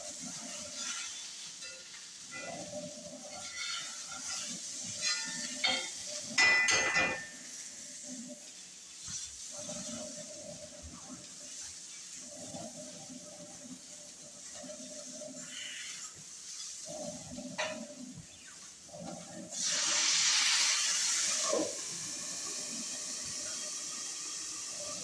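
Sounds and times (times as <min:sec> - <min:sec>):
food sizzling in a frying pan: 0:00.0 - 0:25.0
metal utensil scraping pan: 0:00.4 - 0:07.7.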